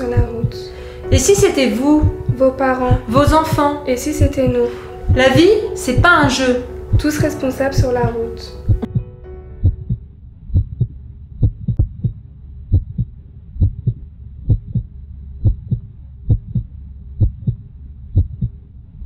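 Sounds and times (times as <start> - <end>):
heartbeat thumps: 0.0 - 18.6
faint low hum: 5.1 - 19.0.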